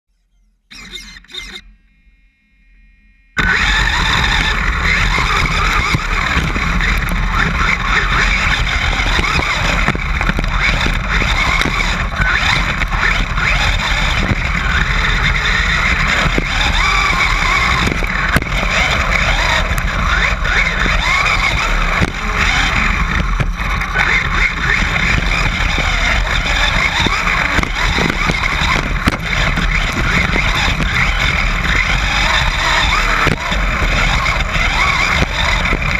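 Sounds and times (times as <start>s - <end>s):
electric motor whine: 0.7s - 35.9s
low rattling rumble: 3.4s - 35.9s.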